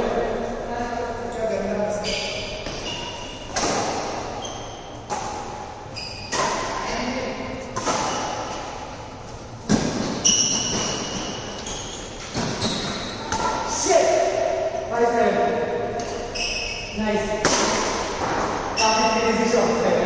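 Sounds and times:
rackets hitting shuttlecock: 0:02.4 - 0:09.0, 0:17.4 - 0:18.9.

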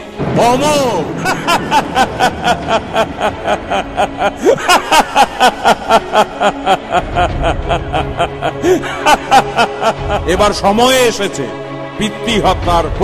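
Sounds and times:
man laughing maniacally: 0:01.0 - 0:10.7.

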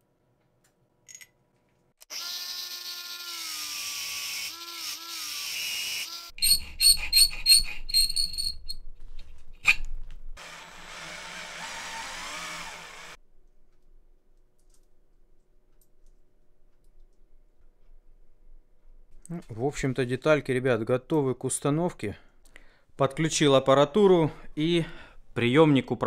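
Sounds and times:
small power tool whining: 0:02.0 - 0:06.4, 0:10.4 - 0:13.2.

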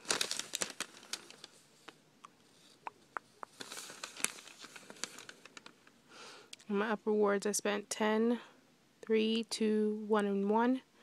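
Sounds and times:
paper receipt rustling: 0:00.0 - 0:02.8, 0:03.4 - 0:05.9.

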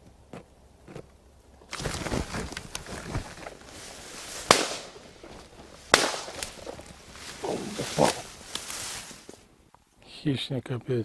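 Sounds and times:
brush rustling against camera: 0:01.7 - 0:09.5.

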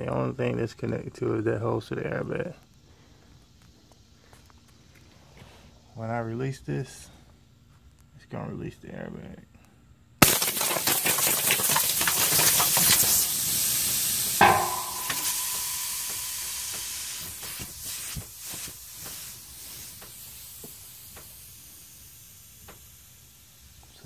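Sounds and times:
compressed air hissing: 0:10.5 - 0:24.0.

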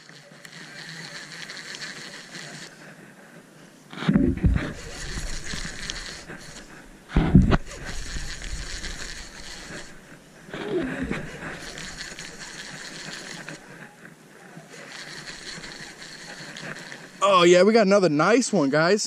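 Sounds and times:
fishing rod and reel handling: 0:00.0 - 0:02.8, 0:04.6 - 0:06.8, 0:07.5 - 0:17.2
wind hiss: 0:03.9 - 0:13.7.

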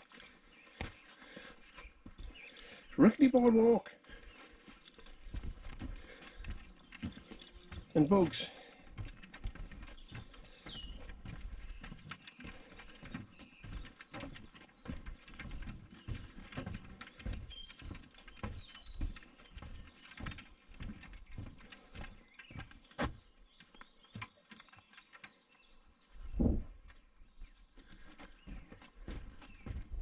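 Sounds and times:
footsteps on wooden boardwalk: 0:00.0 - 0:30.0.

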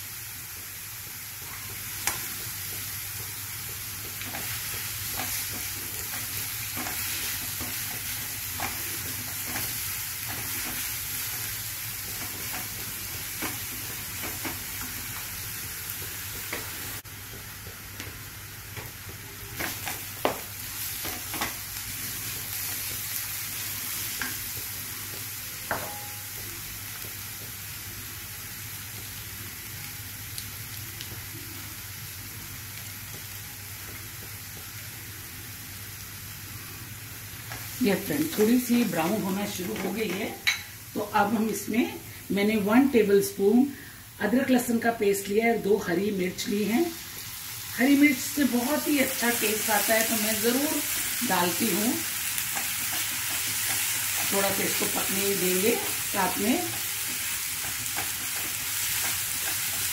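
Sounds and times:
onions sizzling in oil: 0:00.0 - 0:59.9
taps on the pan: 0:25.7 - 0:26.5.

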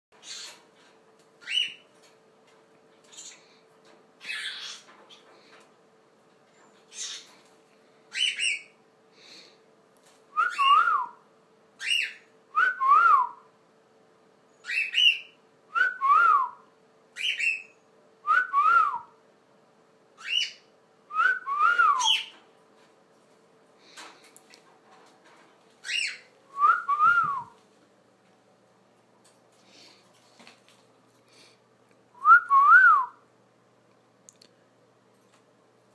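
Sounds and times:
cockatiel whistling: 0:10.4 - 0:11.2, 0:14.6 - 0:16.3, 0:17.2 - 0:17.8, 0:20.2 - 0:20.6, 0:21.2 - 0:22.3, 0:25.8 - 0:27.5.

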